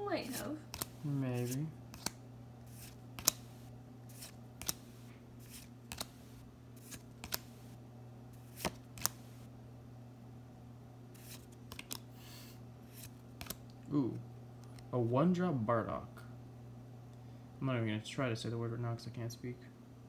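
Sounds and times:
steady low hum: 0.0 - 20.0
trading cards flicked by hand: 0.6 - 7.7, 8.4 - 9.4, 11.2 - 12.1, 12.9 - 13.6.

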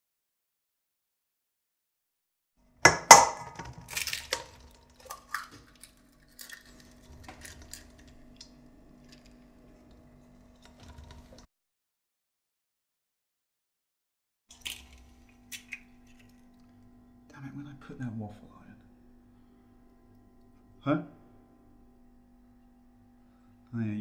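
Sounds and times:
faint steady hum: 14.5 - 24.0.

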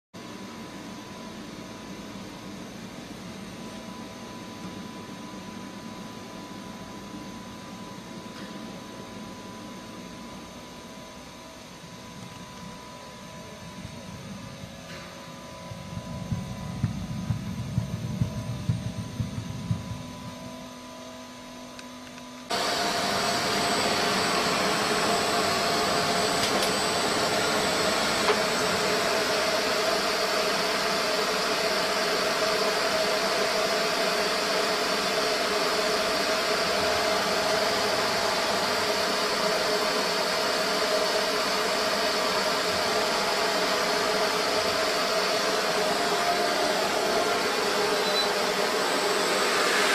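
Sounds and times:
low rumble with knocks: 15.8 - 20.5.

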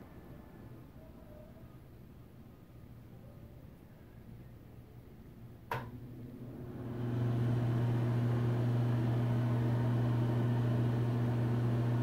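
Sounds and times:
exhaust fan low buzz: 5.5 - 12.0.

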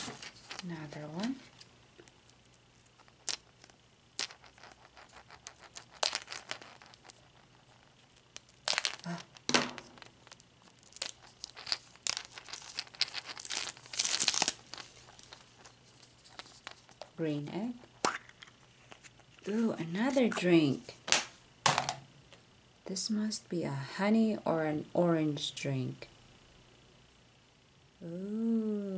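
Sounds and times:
tape peeling and crinkling: 7.9 - 17.1.

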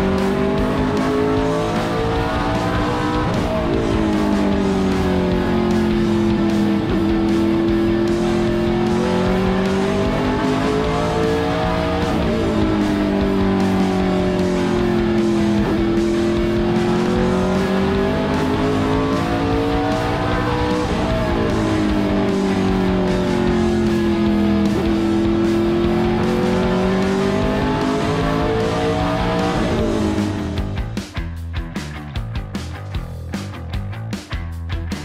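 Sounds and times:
race car engine at speed: 0.0 - 31.1.

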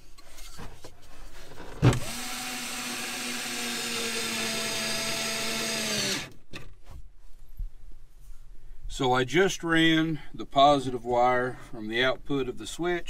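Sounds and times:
electric screwdriver driving screw: 1.9 - 6.4.

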